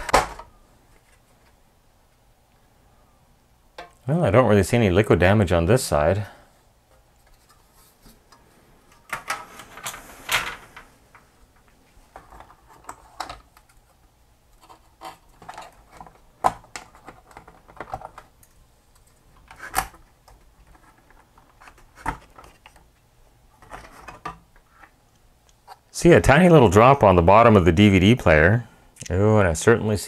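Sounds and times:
plastic parts clicking: 14.5s - 22.9s.

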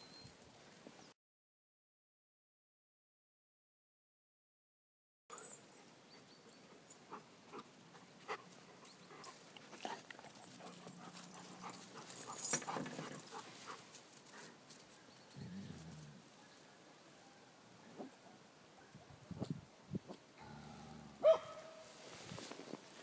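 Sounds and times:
dogs play-fighting: 6.8s - 14.5s
low pitched dog sound: 20.4s - 21.9s.

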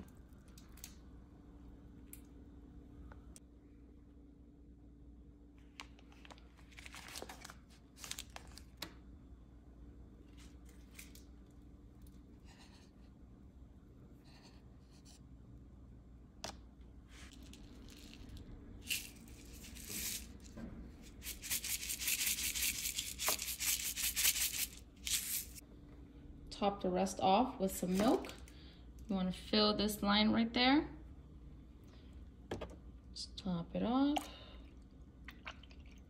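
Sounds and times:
wrapper crinkling and tearing: 6.0s - 8.8s.

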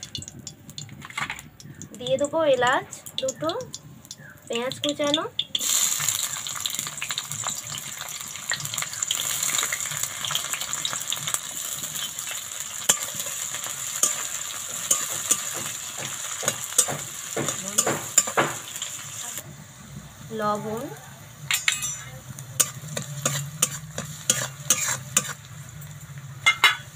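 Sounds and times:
onions sizzling in oil: 0.0s - 26.9s
spatula scraping wok: 5.5s - 19.4s, 21.4s - 26.9s.

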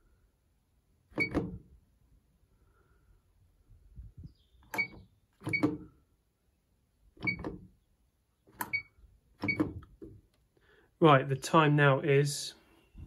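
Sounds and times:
washing machine beeps: 1.2s - 1.5s, 4.7s - 5.8s, 7.2s - 7.5s, 8.6s - 9.8s.

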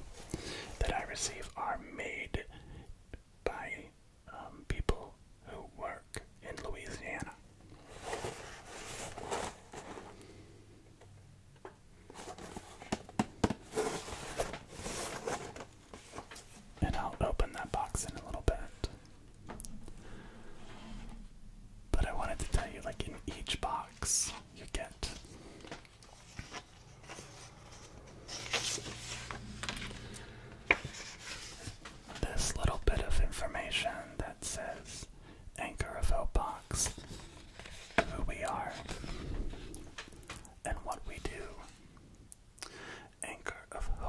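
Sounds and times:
paper rustling: 13.6s - 16.7s, 25.1s - 32.2s.

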